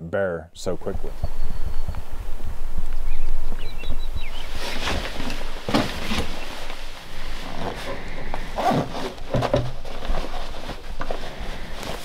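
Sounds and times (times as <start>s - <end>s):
gear scraping in backpack: 4.1s - 12.0s
nylon fabric rustling: 4.3s - 12.0s
zipper being pulled: 7.2s - 12.0s.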